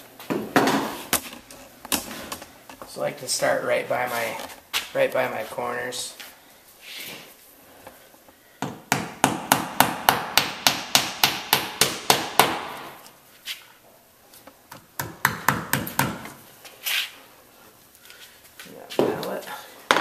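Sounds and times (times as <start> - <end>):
hammer tapping nails into wood: 14.7 - 16.3.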